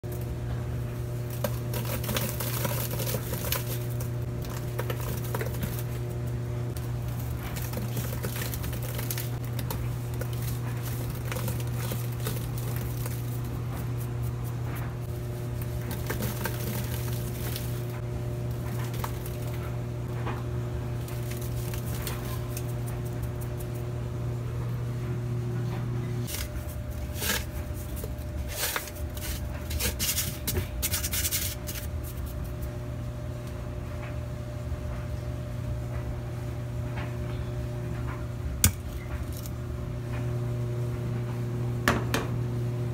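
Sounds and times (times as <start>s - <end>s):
washing machine hum: 0.0s - 42.9s
crackles and splashes: 1.0s - 19.9s, 20.9s - 23.7s.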